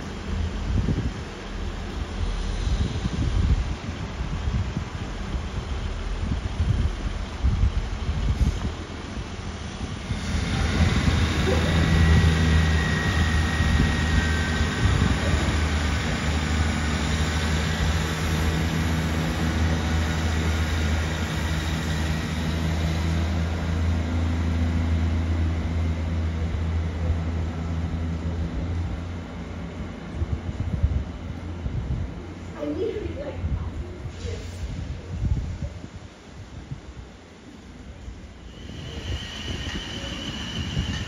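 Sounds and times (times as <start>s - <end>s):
train engine drone: 0.0s - 41.0s
brief high whine: 38.4s - 41.0s.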